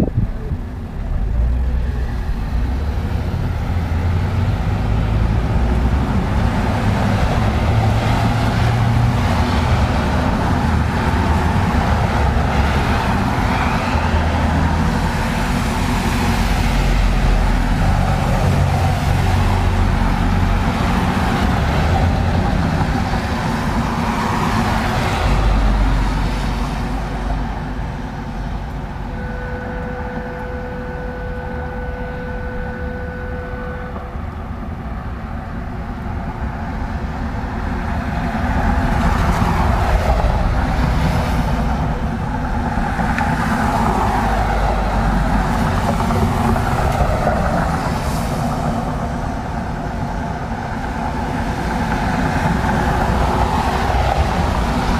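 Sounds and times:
pickup truck passing: 0:00.0 - 0:54.9
tyres hissing on wet road: 0:01.2 - 0:28.5, 0:37.6 - 0:54.9
faint steady tone: 0:29.0 - 0:34.9.

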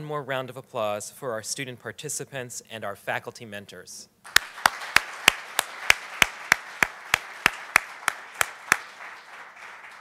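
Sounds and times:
audience applauding: 0:04.3 - 0:10.0
loud close hand claps: 0:04.3 - 0:10.0.

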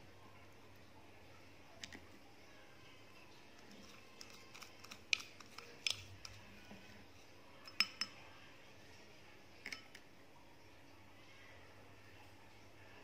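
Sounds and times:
spoon clinking against glass bowl: 0:07.6 - 0:08.2, 0:09.6 - 0:10.0.

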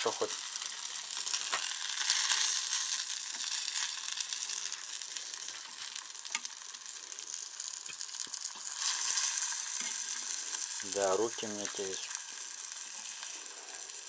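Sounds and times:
fish sizzling in oil: 0:00.0 - 0:14.0
utensil clicking on pan: 0:06.2 - 0:06.7.

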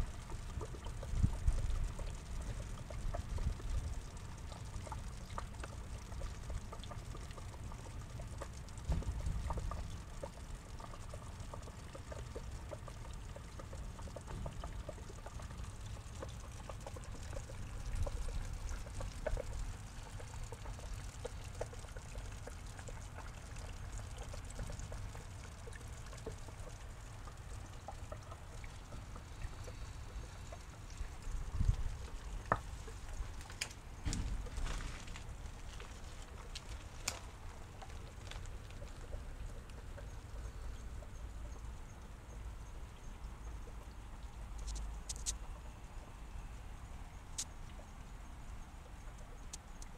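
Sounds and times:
water drips: 0:00.0 - 0:49.9
water trickling and pouring: 0:00.0 - 0:49.9.

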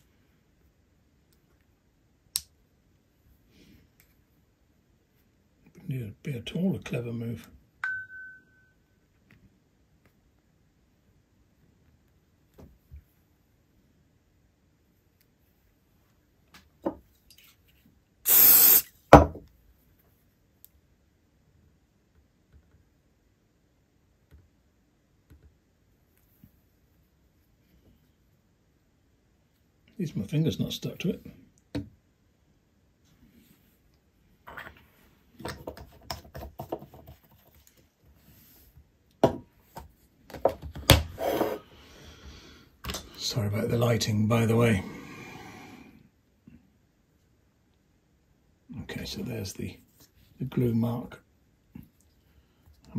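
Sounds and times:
aerosol spray hiss: 0:18.3 - 0:18.9
sharp knocks on workbench: 0:19.1 - 0:19.4.

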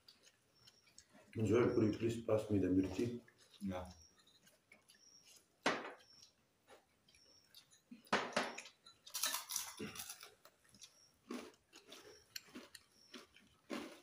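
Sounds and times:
tableware clinking: 0:07.6 - 0:10.3.

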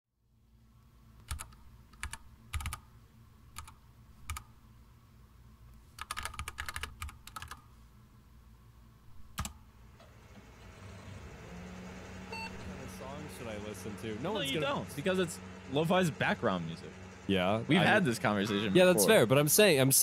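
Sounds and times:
typing on keyboard: 0:01.2 - 0:02.8, 0:03.6 - 0:04.5, 0:06.0 - 0:07.6, 0:09.4 - 0:09.6.

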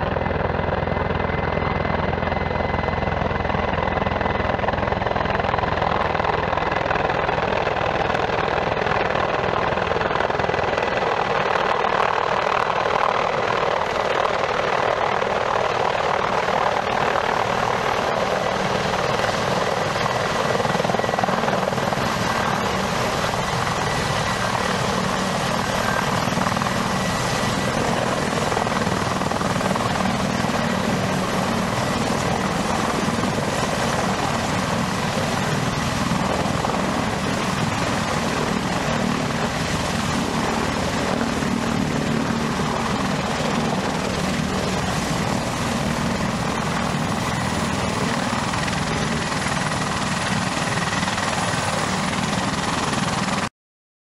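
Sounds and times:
helicopter rotor and engines: 0:00.0 - 0:53.5
high-pitched turbine whine: 0:16.2 - 0:53.5.

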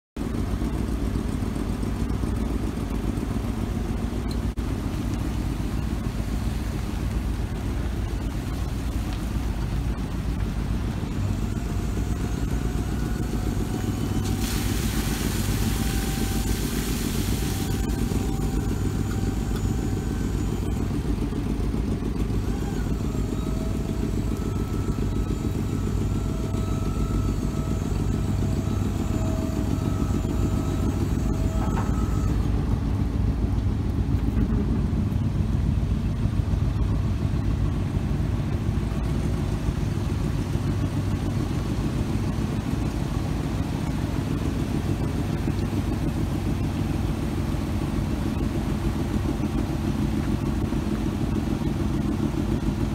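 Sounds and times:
hydraulic pump whine: 0:00.2 - 0:52.9
truck engine rumble: 0:00.2 - 0:52.9
rushing hiss: 0:14.2 - 0:18.3.

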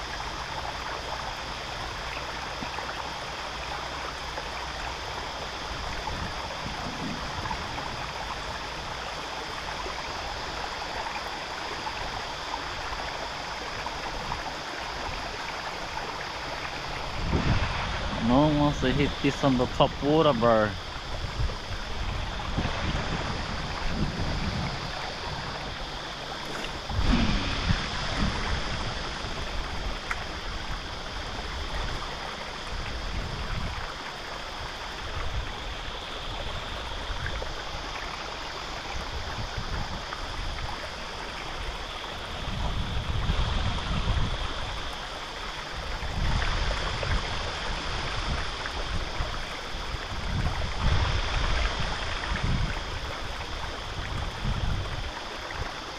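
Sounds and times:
water running over rocks: 0:00.0 - 0:55.9
wind buffeting microphone: 0:05.6 - 0:09.5, 0:16.4 - 0:37.6, 0:38.8 - 0:45.0, 0:45.7 - 0:55.8.

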